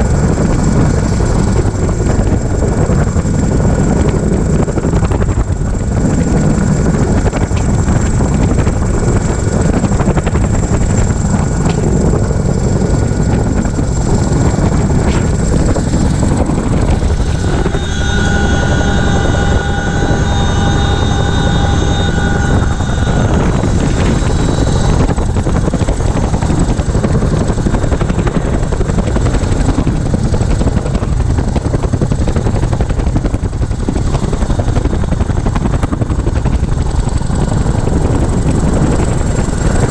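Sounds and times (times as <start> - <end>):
helicopter rotors and engines: 0.0 - 39.9
rush of wind: 0.0 - 39.9
steady high tones: 15.3 - 28.0.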